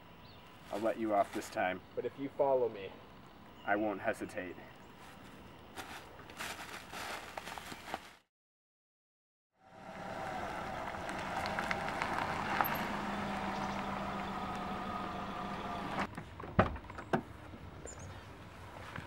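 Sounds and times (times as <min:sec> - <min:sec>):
car engine idling: 0:09.6 - 0:16.1
car door opening: 0:10.3 - 0:17.3.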